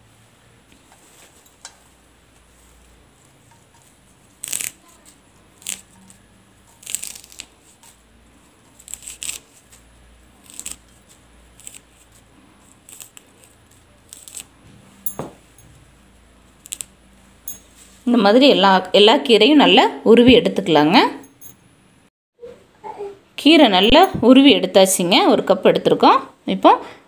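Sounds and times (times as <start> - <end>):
leaves being stripped by hand: 3.8 - 8.0, 8.6 - 14.6, 16.6 - 16.9.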